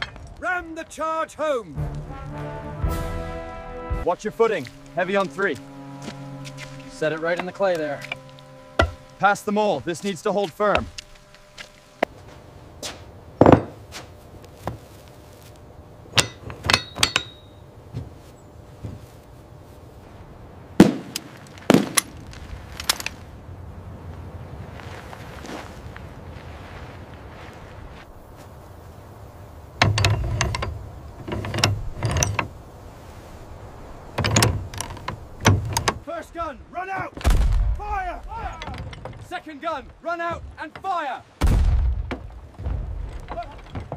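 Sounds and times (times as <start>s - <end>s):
sharp metallic clinks and taps: 16.2s - 17.6s.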